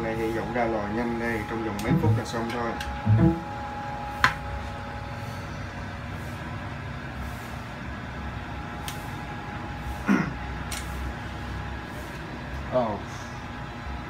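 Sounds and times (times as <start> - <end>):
machine whirring: 1.7 - 3.8
faint two-note hum: 1.8 - 3.9.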